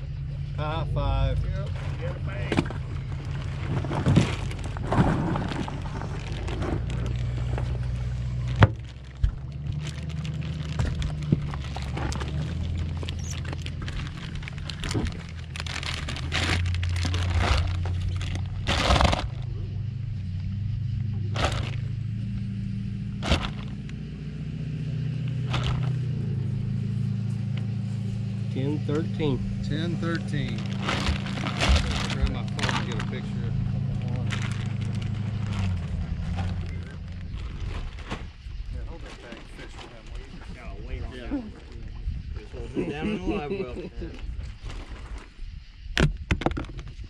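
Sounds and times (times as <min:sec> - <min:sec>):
steady low hum: 0:00.0 - 0:46.3
plastic bag crinkling: 0:03.2 - 0:19.2, 0:30.4 - 0:33.1, 0:34.2 - 0:38.0.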